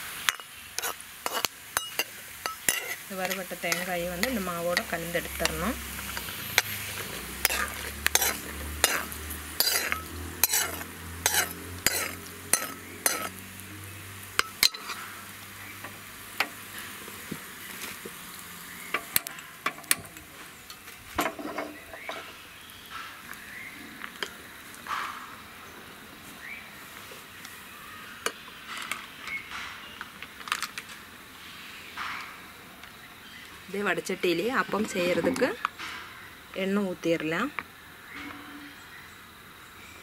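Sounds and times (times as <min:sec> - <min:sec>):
spoon scraping and tapping pan: 0:00.2 - 0:13.4, 0:14.4 - 0:15.1
ladle stirring batter: 0:00.3 - 0:13.3.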